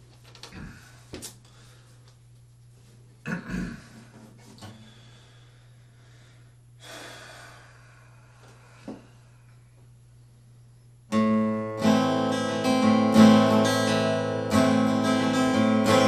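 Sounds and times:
steady low hum: 0:00.0 - 0:16.0
man breathing and sniffing: 0:00.6 - 0:02.3, 0:03.7 - 0:09.8.

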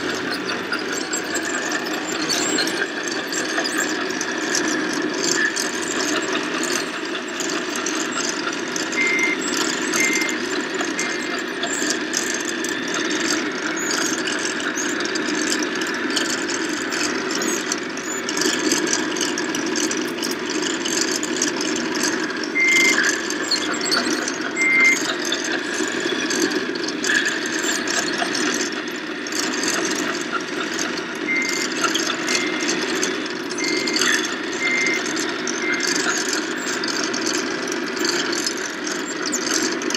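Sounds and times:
simulated diesel engine running: 0:00.0 - 0:39.9
reversing beeper short beeps: 0:08.9 - 0:12.0, 0:22.6 - 0:25.3, 0:31.3 - 0:36.8.

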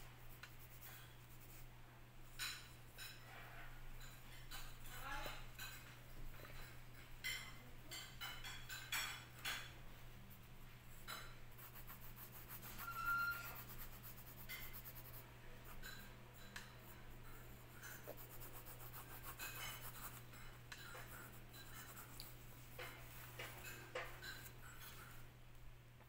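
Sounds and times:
pencil scratching on paper: 0:00.2 - 0:01.7, 0:11.0 - 0:23.0.

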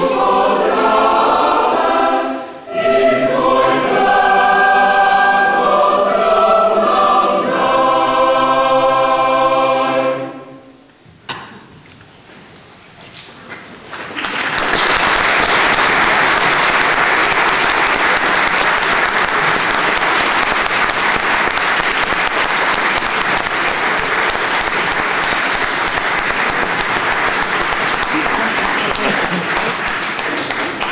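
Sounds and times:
audience applauding: 0:13.9 - 0:30.9.

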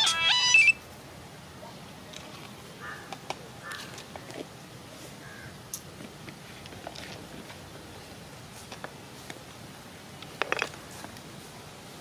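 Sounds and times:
bird calls: 0:00.0 - 0:00.8.

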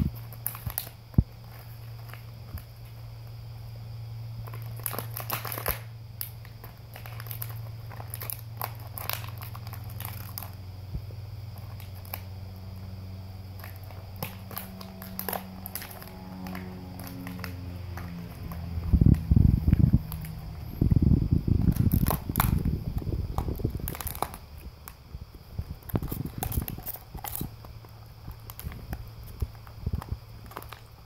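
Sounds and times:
steady low hum: 0:00.0 - 0:31.0
dog chewing plastic bottle: 0:04.4 - 0:10.6, 0:13.5 - 0:20.6, 0:21.6 - 0:25.0, 0:25.6 - 0:31.0.

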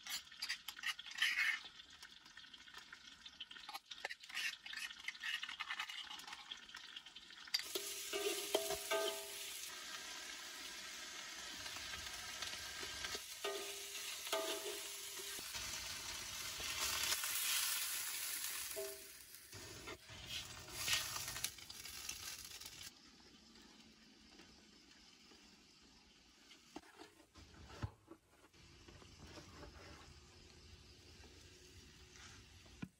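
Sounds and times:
water poured into wok: 0:01.2 - 0:24.0
paste sizzling in a wok: 0:07.6 - 0:23.2
metal spatula ringing against pan: 0:07.8 - 0:09.6, 0:13.4 - 0:15.4.

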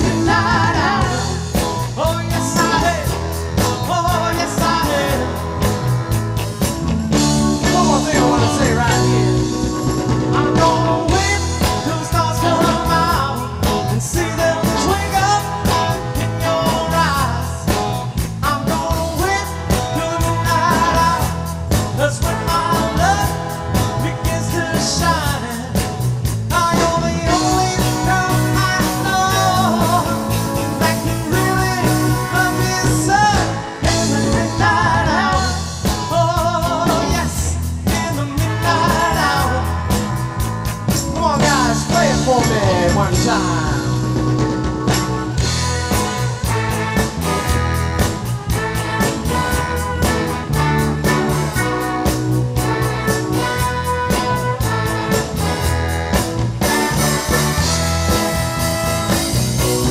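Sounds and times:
man singing lead: 0:00.0 - 0:06.2, 0:07.1 - 0:59.9
drum kit beat: 0:00.0 - 0:59.9
electric bass: 0:00.0 - 0:59.9
trombone: 0:00.0 - 0:59.9
saxophone: 0:26.7 - 0:35.9, 0:36.6 - 0:42.1, 0:43.0 - 0:59.9.

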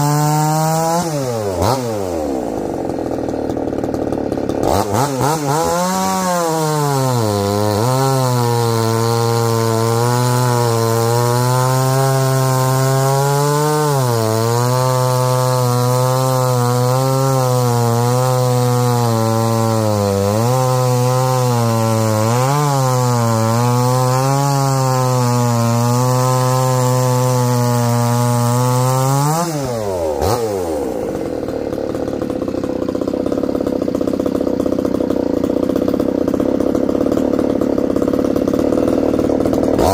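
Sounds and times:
chainsaw cutting log: 0:00.0 - 0:39.9
chainsaw idling: 0:00.0 - 0:39.9.

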